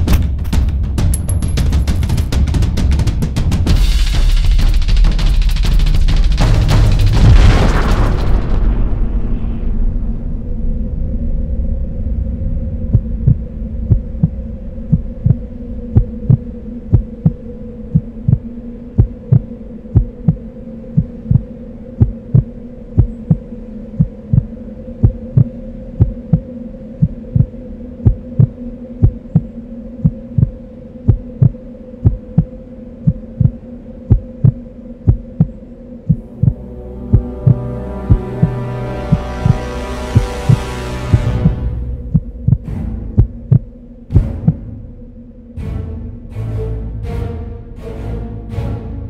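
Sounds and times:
low explosion rumble: 7.0s - 21.4s
steady low hum: 8.6s - 46.8s
heartbeat thumps: 12.8s - 39.6s, 40.2s - 44.8s.

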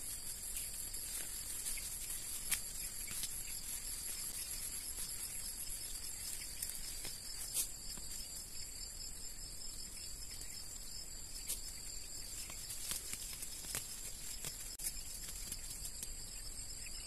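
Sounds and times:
weeds snapping and rustling: 0.0s - 5.2s, 6.2s - 8.1s, 12.4s - 16.1s
insects chirring: 0.0s - 17.0s.

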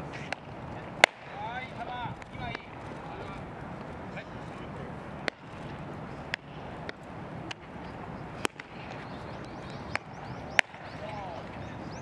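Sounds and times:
baseballs popping into leather gloves: 0.1s - 1.4s, 5.2s - 11.1s.

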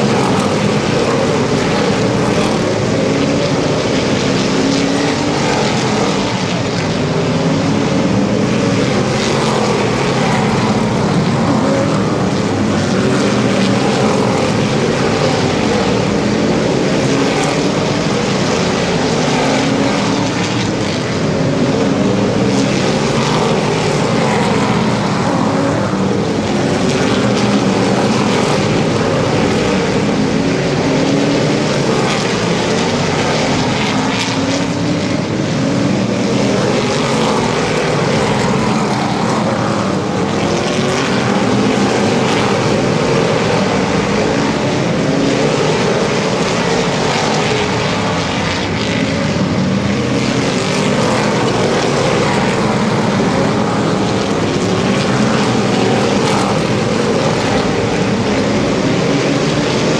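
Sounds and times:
racing car engines droning: 0.0s - 59.9s.

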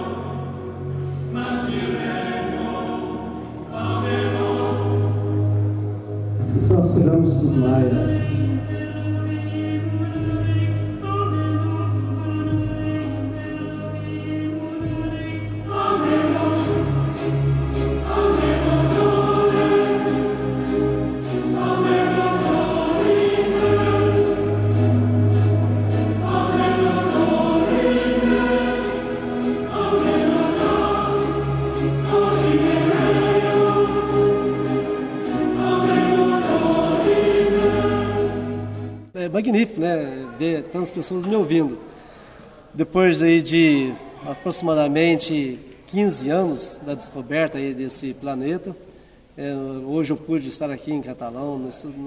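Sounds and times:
choir singing held chords: 0.0s - 39.2s
high shimmer: 3.7s - 39.1s
sustained bass notes: 6.3s - 8.8s.

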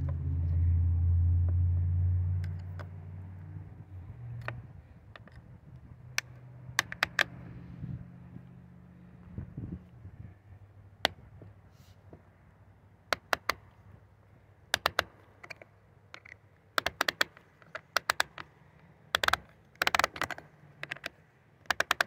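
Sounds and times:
chainsaw tensioner clicking: 14.7s - 15.6s, 16.2s - 18.5s, 19.1s - 22.0s.

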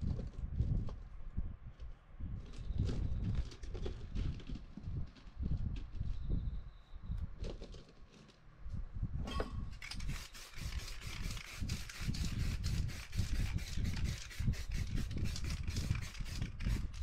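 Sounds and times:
spray paint can hissing: 9.9s - 17.0s.

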